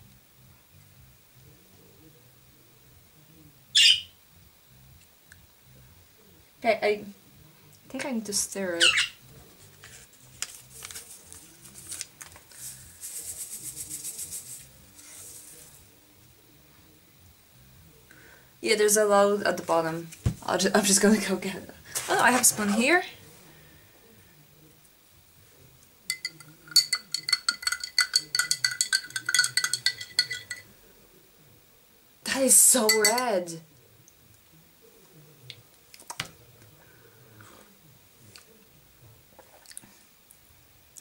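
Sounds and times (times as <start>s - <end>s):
paper packet crinkling: 9.7s - 14.2s
packet shaking rustle: 9.7s - 15.6s
spoon clinking against glass: 26.1s - 30.7s, 32.9s - 33.4s.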